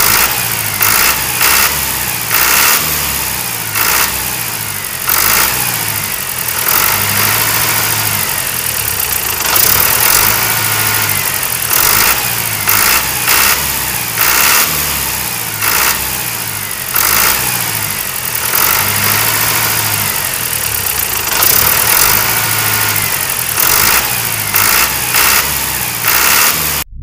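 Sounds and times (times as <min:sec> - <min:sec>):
tractor engine revving: 0:00.0 - 0:27.0.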